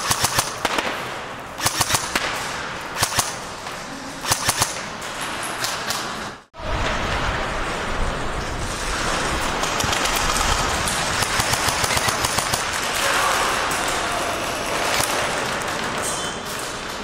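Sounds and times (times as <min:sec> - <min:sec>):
airsoft guns firing: 0:00.0 - 0:03.6, 0:04.2 - 0:05.0, 0:09.9 - 0:13.8
players' voices: 0:03.4 - 0:05.4, 0:12.6 - 0:17.0.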